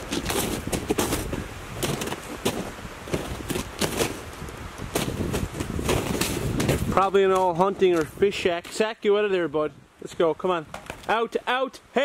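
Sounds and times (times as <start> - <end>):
footsteps crunching in snow: 0.0 - 8.9.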